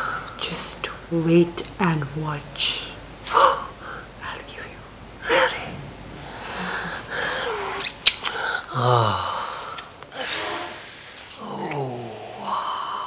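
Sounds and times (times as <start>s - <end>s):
heavy breathing: 6.2s - 11.5s
kissing smacks: 7.8s - 8.4s, 9.8s - 10.0s
person moaning: 8.4s - 9.8s, 11.4s - 13.0s.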